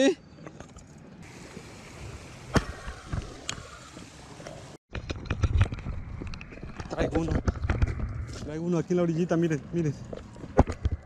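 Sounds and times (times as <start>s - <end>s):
stream running over rocks: 1.2s - 4.8s
footsteps on gravel path: 9.7s - 11.0s.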